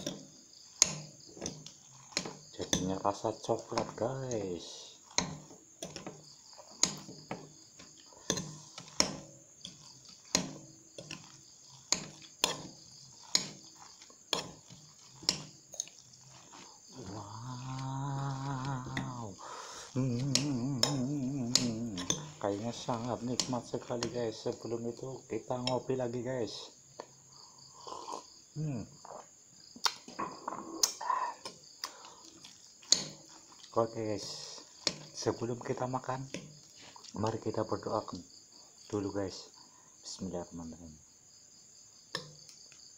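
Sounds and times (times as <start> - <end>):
crickets chirring: 0.0 - 42.9
breathy exhale: 19.4 - 20.0
man sipping coffee: 27.6 - 28.4.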